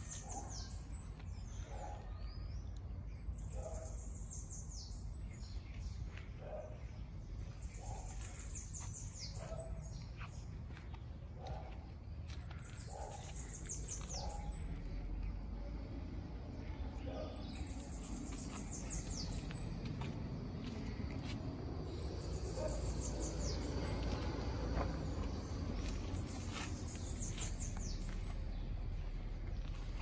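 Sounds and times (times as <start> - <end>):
steady low rumble: 5.0 - 30.0.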